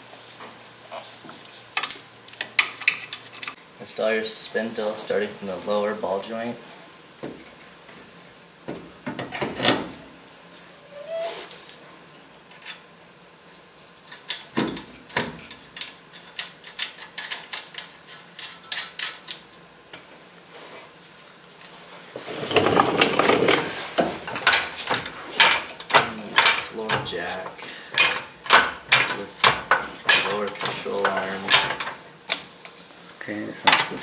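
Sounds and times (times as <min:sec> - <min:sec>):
metal parts clinking and knocking: 0:24.2 - 0:27.2, 0:27.9 - 0:32.0.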